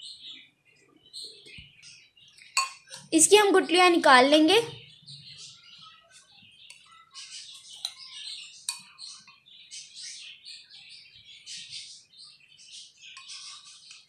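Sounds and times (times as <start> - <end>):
small birds chirping: 0.0 - 14.0
spoon clinking against glass mug: 2.6 - 3.1.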